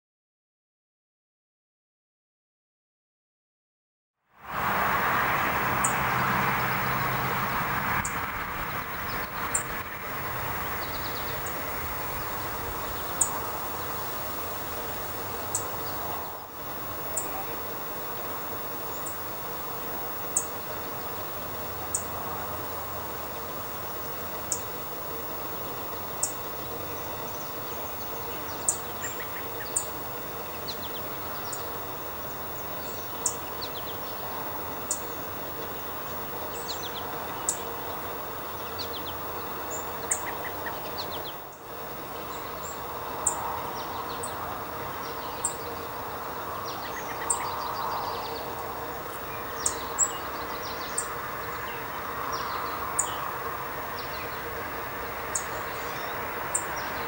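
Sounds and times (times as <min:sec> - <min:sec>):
steady background hum: 0:04.6 - 0:57.0
songbird chip notes: 0:08.0 - 0:53.2.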